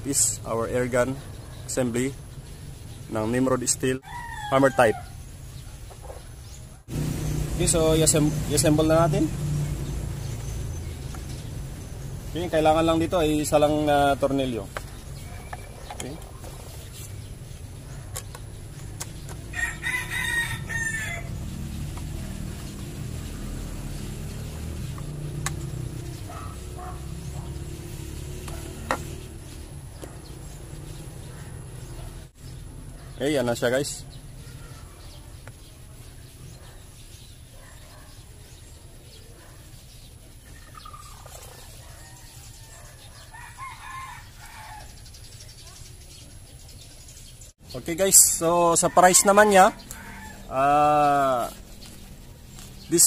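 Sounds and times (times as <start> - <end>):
rooster crowing: 4.0 - 5.2, 19.5 - 21.4, 41.6 - 45.0, 48.6 - 50.7.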